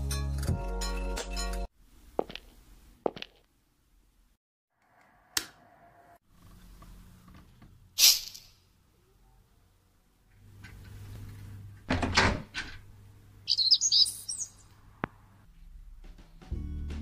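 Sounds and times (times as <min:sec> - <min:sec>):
music: 0:00.0 - 0:01.7, 0:15.8 - 0:17.0
door unlatching and opening: 0:11.8 - 0:12.9
bird chirping: 0:13.4 - 0:14.7.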